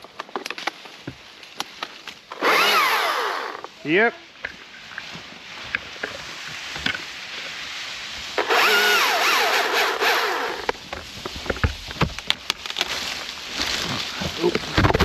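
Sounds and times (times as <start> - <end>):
sharp cracks and clicks: 0.0 - 0.9
chainsaw cutting wood: 2.3 - 3.7, 8.4 - 10.8.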